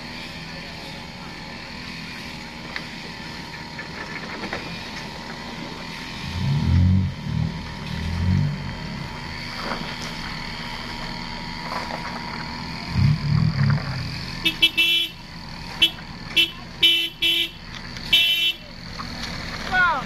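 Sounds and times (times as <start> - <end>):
truck engine in mud: 0.0 - 20.0
vehicle horn short toots: 14.4 - 18.7.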